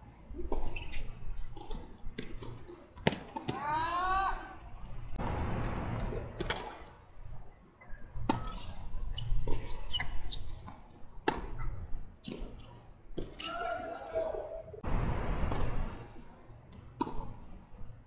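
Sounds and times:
tennis ball bouncing: 1.6s - 3.6s, 11.2s - 11.6s, 16.7s - 17.4s.

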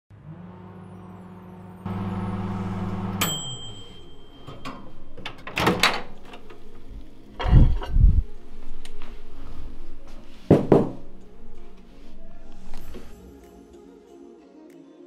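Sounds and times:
microwave oven humming: 0.1s - 5.4s
timer bell ding: 3.1s - 5.2s
oven door popping open: 4.4s - 6.6s.

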